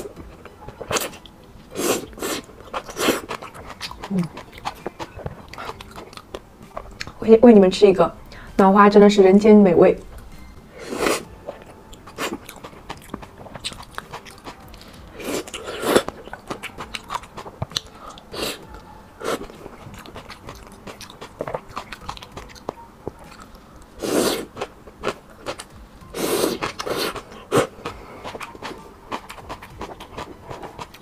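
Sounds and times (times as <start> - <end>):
wet chewing: 0.0 - 7.3, 10.1 - 31.0
slurping noodles: 0.9 - 3.6, 10.8 - 11.3, 15.2 - 16.1, 24.0 - 24.7, 26.2 - 28.4.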